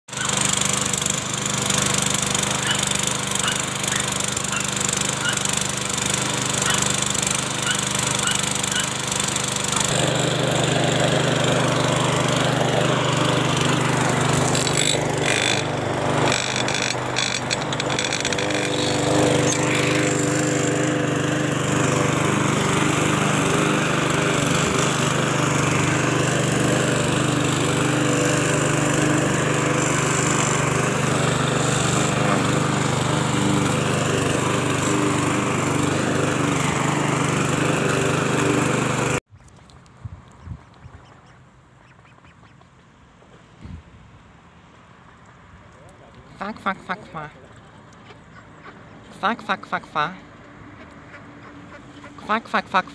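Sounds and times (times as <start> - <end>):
lawn mower engine running: 0.1 - 39.3.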